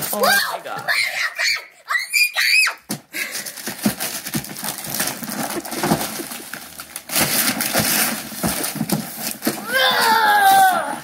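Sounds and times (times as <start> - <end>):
wrapping paper crinkling and tearing: 3.2 - 11.0.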